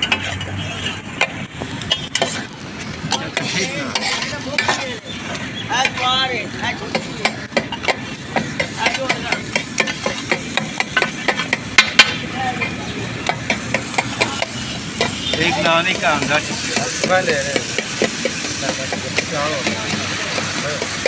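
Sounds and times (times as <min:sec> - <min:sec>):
food sizzling: 0:00.0 - 0:21.0
metal spatulas clattering on griddle: 0:01.2 - 0:02.5, 0:03.1 - 0:05.0, 0:06.8 - 0:12.2, 0:13.3 - 0:21.0.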